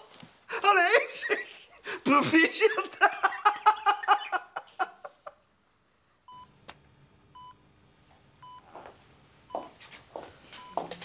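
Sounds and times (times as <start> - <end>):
person laughing: 0.7 - 6.3
patient monitor beeping: 6.2 - 6.6, 7.4 - 7.6, 8.4 - 8.7, 10.5 - 11.0.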